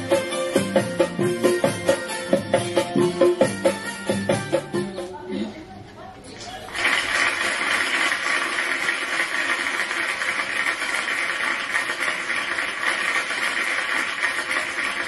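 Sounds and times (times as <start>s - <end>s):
audience applauding: 6.6s - 15.0s.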